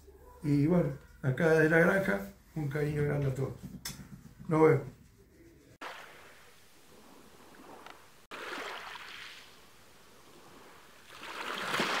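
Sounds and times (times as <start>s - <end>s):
small waves washing in: 5.8s - 12.0s.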